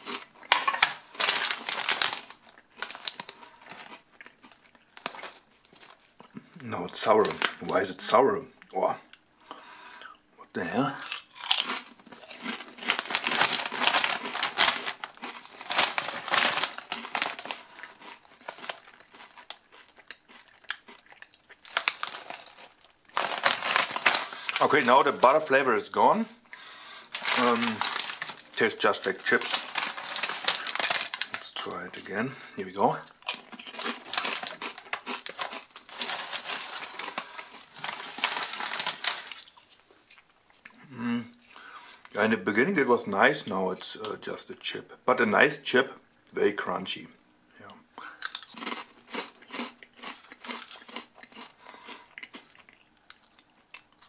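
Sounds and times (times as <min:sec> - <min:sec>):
crisp bag crinkling: 0:00.0 - 0:06.2, 0:10.8 - 0:25.9, 0:27.0 - 0:32.2, 0:33.0 - 0:40.2, 0:48.2 - 0:54.0
potato chips crunching: 0:00.0 - 0:07.9, 0:10.8 - 0:25.7, 0:27.0 - 0:32.2, 0:33.0 - 0:40.8, 0:48.0 - 0:54.0.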